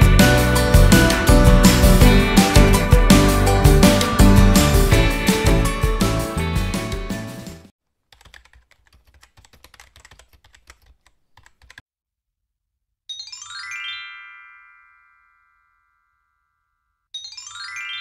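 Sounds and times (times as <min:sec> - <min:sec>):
rising chime: 0:00.0 - 0:06.5, 0:13.1 - 0:16.3, 0:17.2 - 0:18.0
intro music: 0:00.0 - 0:07.7
keyboard typing clicks: 0:08.1 - 0:11.8.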